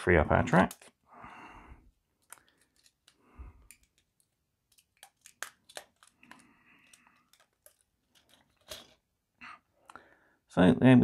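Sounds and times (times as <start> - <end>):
plastic track pieces clicking: 2.2 - 9.0.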